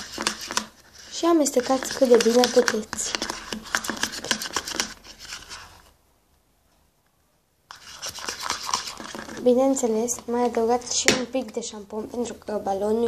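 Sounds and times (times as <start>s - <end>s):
metal spoon scraping plastic tub: 0.0s - 5.9s, 7.7s - 10.9s.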